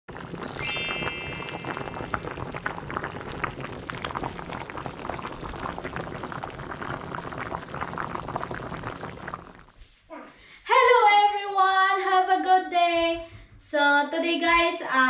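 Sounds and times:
stew bubbling in a pot: 0:00.1 - 0:09.8.

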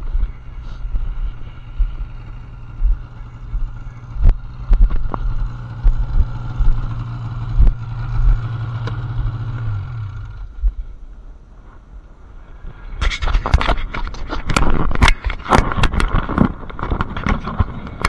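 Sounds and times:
snowmobile engine running: 0:00.0 - 0:11.0
knocks and rattles: 0:13.0 - 0:18.0.

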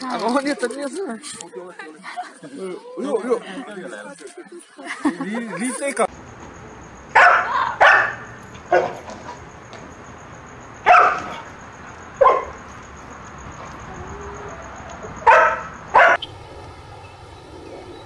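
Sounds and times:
dog barking: 0:07.1 - 0:09.0, 0:10.8 - 0:11.5, 0:12.2 - 0:12.6, 0:15.0 - 0:16.2.

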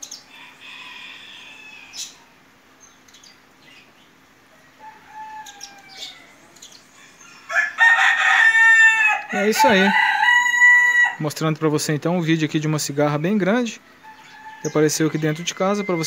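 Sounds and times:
faint bird calls: 0:00.0 - 0:07.6
faint steady hum: 0:00.0 - 0:16.0
rooster crowing: 0:00.3 - 0:02.4, 0:04.5 - 0:11.3, 0:13.9 - 0:16.0.

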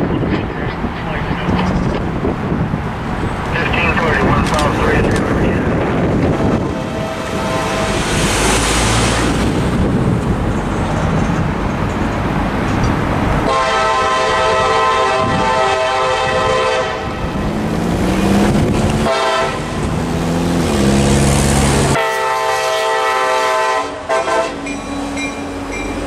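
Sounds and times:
road vehicle passing: 0:00.0 - 0:22.2
diesel locomotive horn: 0:06.2 - 0:08.6, 0:13.4 - 0:17.4, 0:19.0 - 0:20.0, 0:21.6 - 0:25.6.

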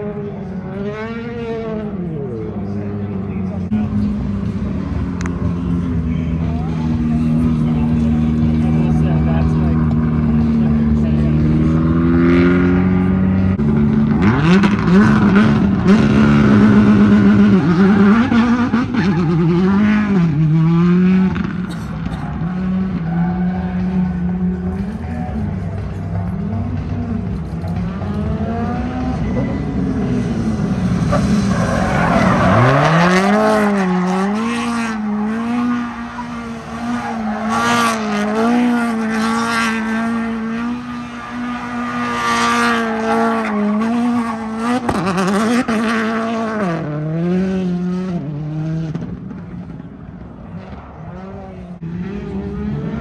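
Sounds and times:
car engine revving hard: 0:06.4 - 0:49.2
tyres spinning and squealing: 0:31.0 - 0:39.2.

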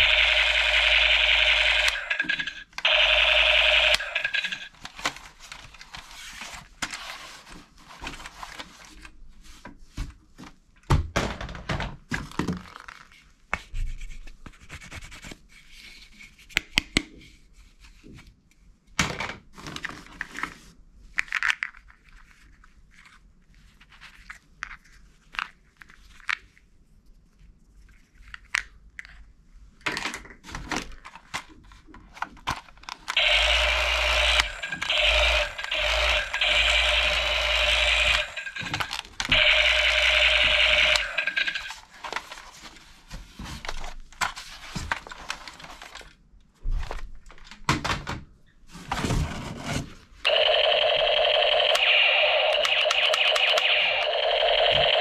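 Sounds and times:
plastic toys clicking and scraping: 0:00.0 - 0:09.1, 0:19.6 - 0:26.6, 0:29.9 - 0:46.2
loud buzzing with low hum: 0:33.2 - 0:41.7.

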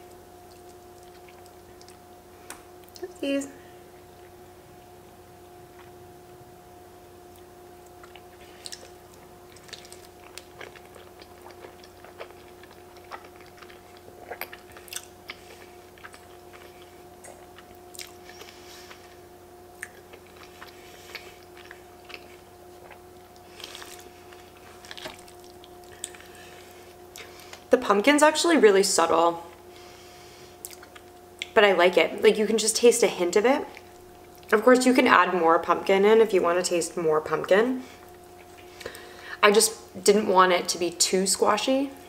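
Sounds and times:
faint two-tone hum: 0:00.0 - 0:42.0
person chewing and slurping: 0:07.9 - 0:19.2, 0:19.8 - 0:27.7.

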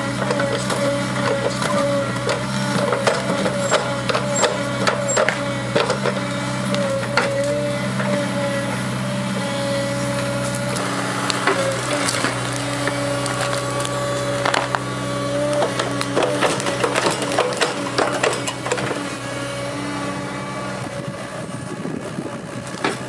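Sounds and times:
excavator diesel engine: 0:00.0 - 0:23.0
hydraulic whine: 0:00.0 - 0:23.0
tree roots cracking: 0:10.1 - 0:18.2.

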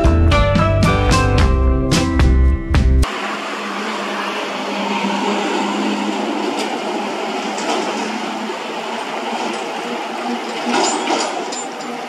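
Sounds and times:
stream rushing: 0:03.0 - 0:12.0.

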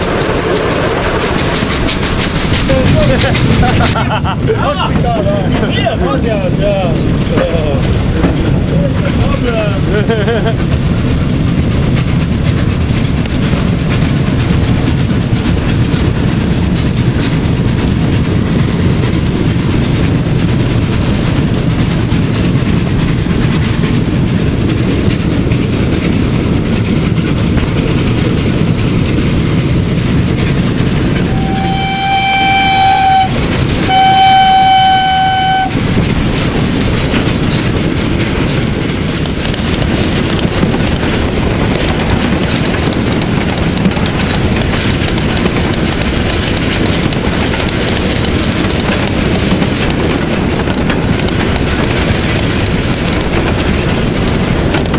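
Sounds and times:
steam locomotive running: 0:00.0 - 0:54.9
steam locomotive whistle blasts: 0:31.3 - 0:35.8.

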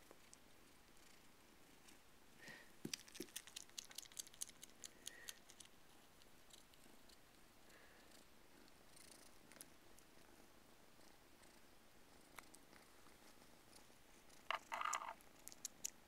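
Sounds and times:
kittens purring: 0:00.0 - 0:16.0.

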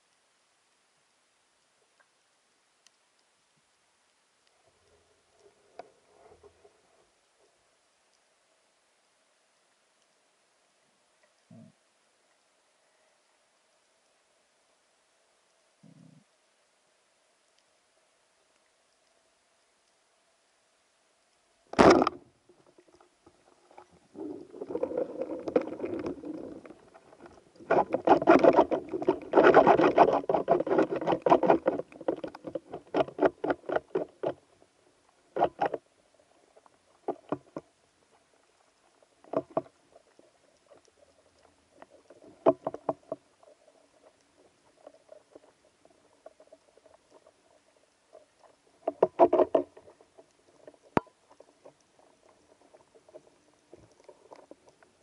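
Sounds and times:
faint steady hum: 0:00.0 - 0:55.0
underwater rattling and knocking: 0:21.8 - 0:22.2, 0:24.2 - 0:34.4, 0:48.8 - 0:51.7.

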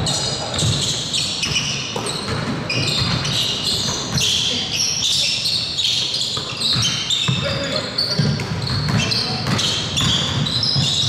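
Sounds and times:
sneakers squeaking: 0:00.0 - 0:11.0
basketball bouncing: 0:00.4 - 0:04.4, 0:06.4 - 0:11.0.

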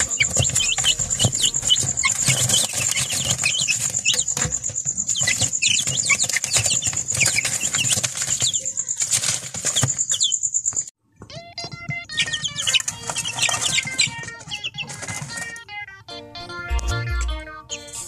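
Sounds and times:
feet and wings rustling on paper: 0:00.0 - 0:10.3, 0:12.2 - 0:15.6
chicks peeping: 0:00.0 - 0:18.0.

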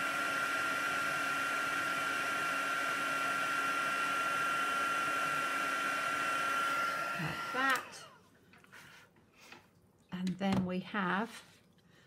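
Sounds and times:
heat tool blowing hot air: 0:00.0 - 0:08.1.

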